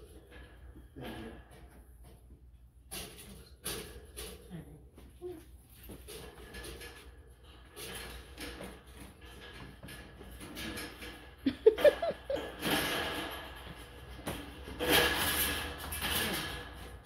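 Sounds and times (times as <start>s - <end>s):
metal rattling and rustling: 0.0s - 17.0s
light metal clicking and scraping: 5.2s - 17.0s.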